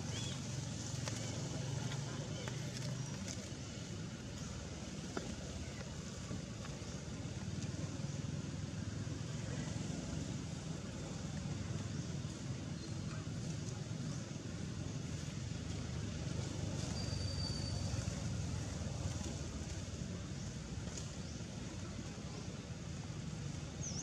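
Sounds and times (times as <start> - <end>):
outdoor background rumble and hiss: 0.0 - 24.0
faint high whistle: 16.9 - 18.0.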